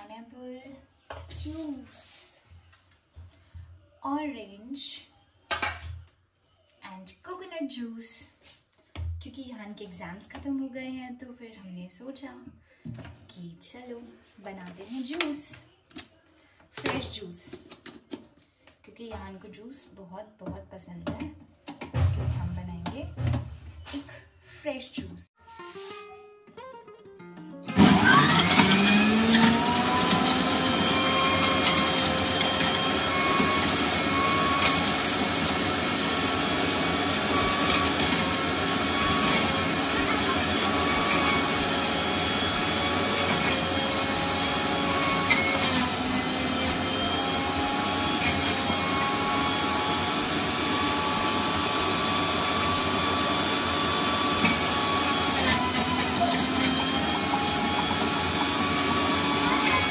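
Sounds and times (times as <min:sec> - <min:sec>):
electric juicer motor whining: 0:27.7 - 0:59.9.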